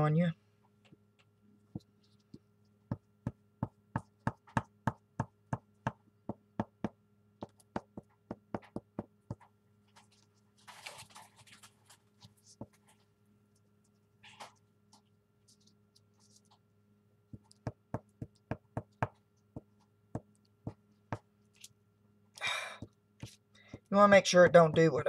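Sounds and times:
glue stick tapping on paper: 2.9 - 9.4, 17.3 - 21.3
pages rustling: 9.9 - 13.1.

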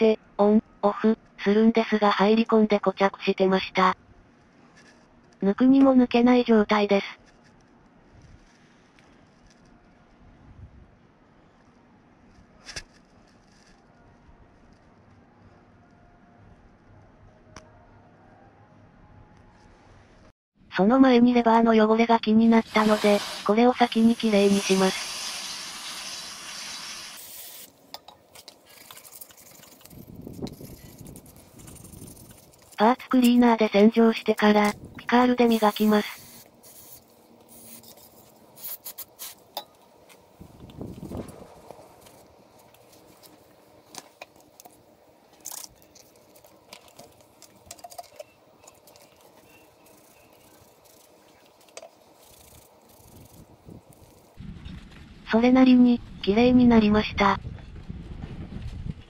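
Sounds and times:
wire brush scratching metal: 22.5 - 39.8, 45.4 - 54.4
aerosol spray hissing: 22.6 - 27.7, 35.3 - 37.9.

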